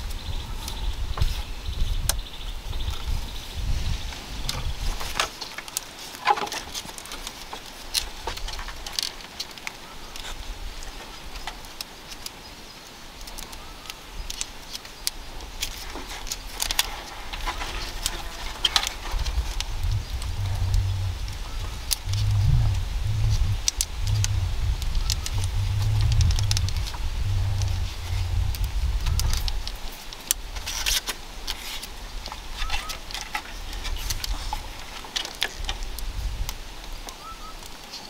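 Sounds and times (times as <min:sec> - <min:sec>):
bamboo strips clicking and creaking: 0:00.0 - 0:38.0
low rumble: 0:18.9 - 0:29.7.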